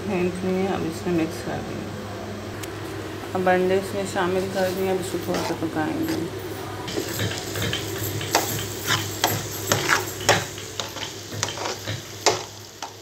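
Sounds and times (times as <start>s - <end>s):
metal spoon scraping a pan: 4.6s - 6.3s, 6.9s - 13.0s
food sizzling in a pan: 6.9s - 13.0s.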